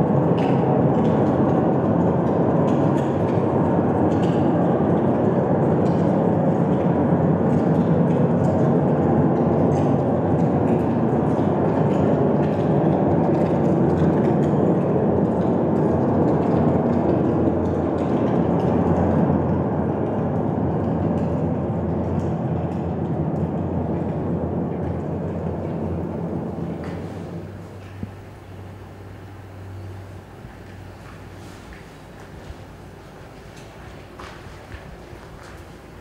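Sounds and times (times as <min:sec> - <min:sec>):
machinery rumble: 0:00.0 - 0:36.0
low hum: 0:13.7 - 0:36.0.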